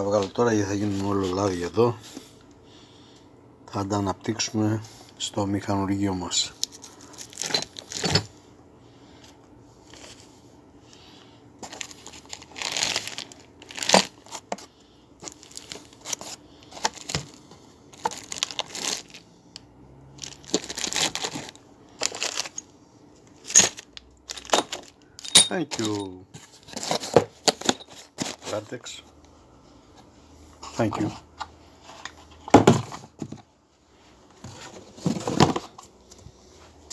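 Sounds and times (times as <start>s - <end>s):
plastic wrapping crinkling: 6.6s - 8.0s, 11.6s - 14.5s, 15.2s - 19.2s, 20.2s - 22.7s.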